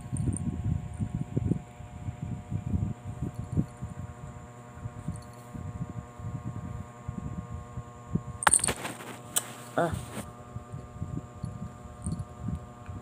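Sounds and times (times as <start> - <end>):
steady background hum: 0.0 - 13.0
rustling and thuds on bedding: 8.5 - 10.3.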